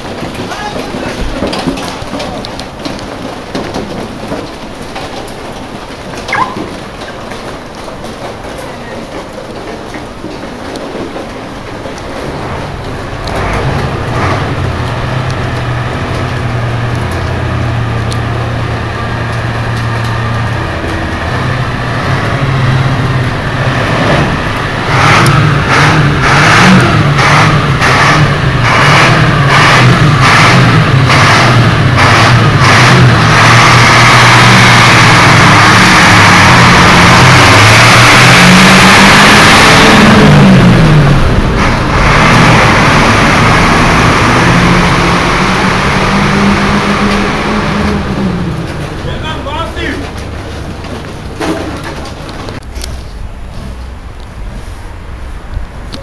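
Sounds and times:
heavy vehicle engines running: 0.0 - 56.0
engine revving: 12.2 - 54.1.

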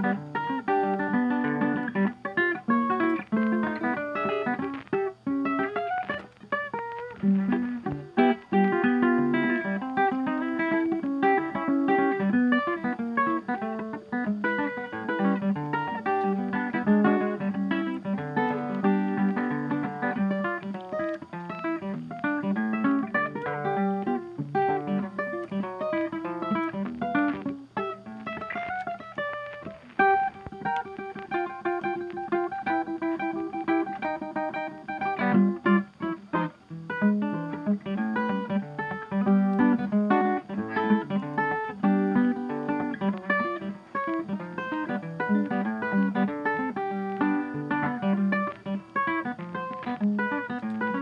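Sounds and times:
plucked acoustic guitar: 0.0 - 51.0.

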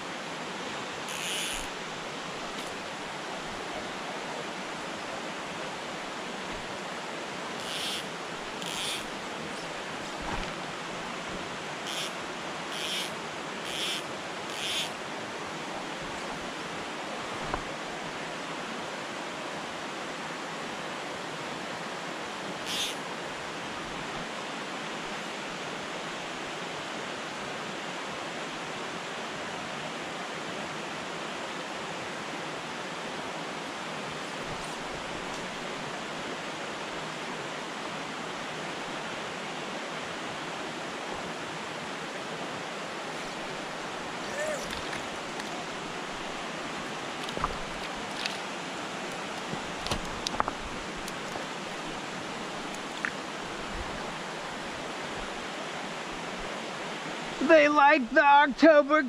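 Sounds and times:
creek water running over rocks: 0.0 - 59.0.

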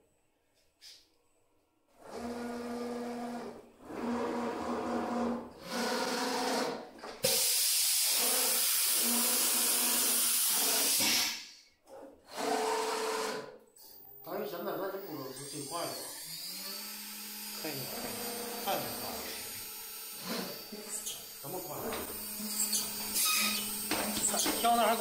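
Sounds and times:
cnc spindle whine: 14.8 - 25.0.

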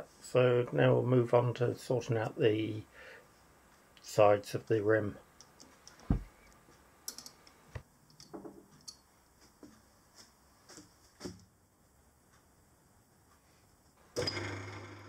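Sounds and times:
faint metallic clicks and knocks: 5.4 - 9.8.

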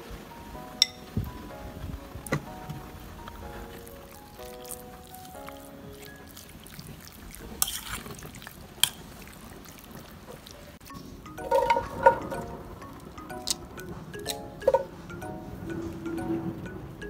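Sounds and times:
chime-like music notes: 0.3 - 1.8, 10.9 - 17.0
wet squelching of meat in sauce: 3.8 - 10.8
utensil clinking against bowl: 10.9 - 12.6.

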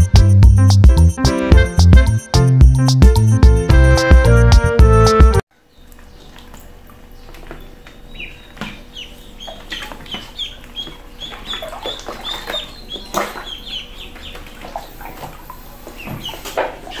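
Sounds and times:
small water splashes: 5.6 - 17.0
ducklings peeping: 5.7 - 17.0.

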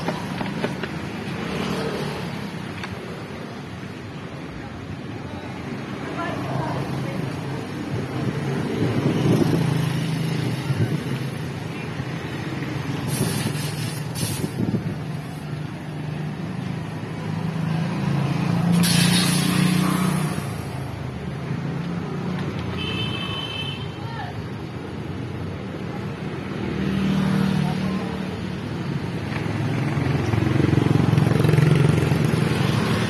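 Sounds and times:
vehicle engines passing: 0.0 - 23.2, 23.9 - 33.0
bursts of hiss: 12.9 - 15.5, 18.6 - 21.0.

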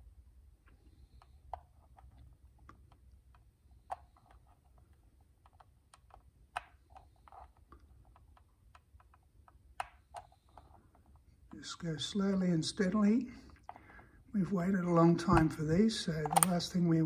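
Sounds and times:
plastic clips clicking: 16.1 - 16.8.

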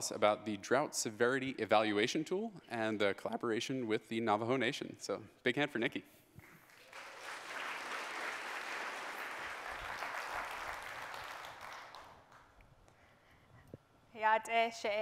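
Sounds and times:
audience applauding: 6.5 - 12.6.

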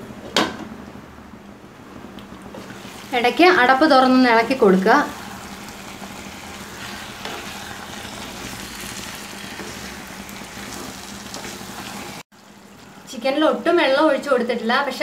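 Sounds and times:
spatula stirring in a pan: 2.6 - 13.2
chicken sizzling in a pan: 2.6 - 13.6.

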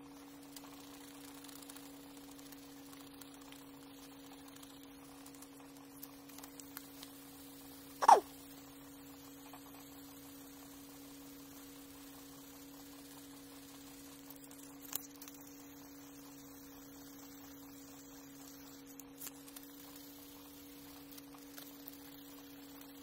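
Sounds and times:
sharp sound dropping in pitch: 8.0 - 8.2.

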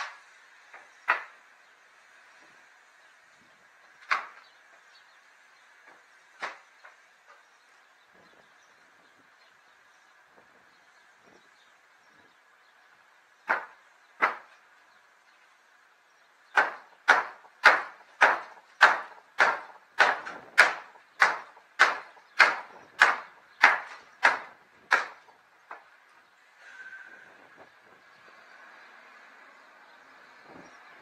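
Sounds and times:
hammer blows on wooden planks: 0.0 - 1.5, 3.9 - 4.8, 5.7 - 7.5, 13.4 - 14.6, 16.5 - 26.0.

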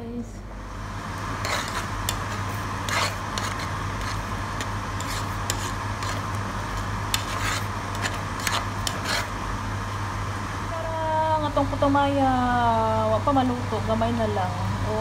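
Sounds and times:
low hum and hiss: 0.0 - 15.0
metal spoon scraping pot: 1.4 - 6.4, 7.1 - 9.4.

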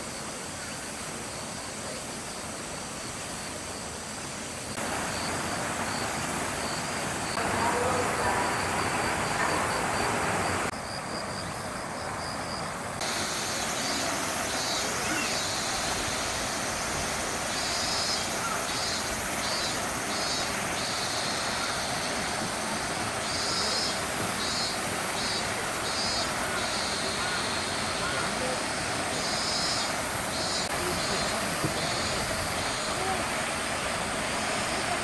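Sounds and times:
shrill insect calls pulsing: 0.0 - 35.0.

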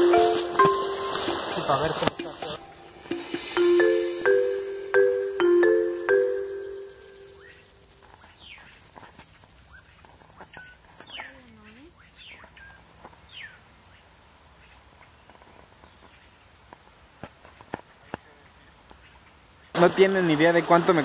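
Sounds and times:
marimba tune: 0.0 - 7.7
insects trilling: 0.0 - 14.7.

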